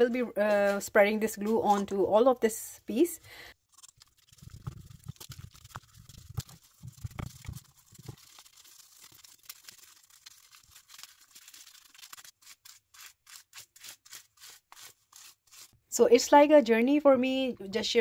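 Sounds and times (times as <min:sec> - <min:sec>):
paintbrush scrubbing rough surface: 0:03.7 - 0:15.8.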